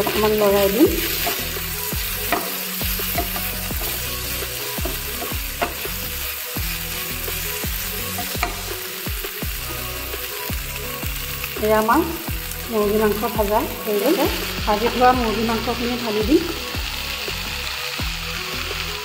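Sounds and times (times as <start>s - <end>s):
chicken sizzling in oil: 0.0s - 19.0s
wooden spatula clicking on pan: 2.2s - 4.0s.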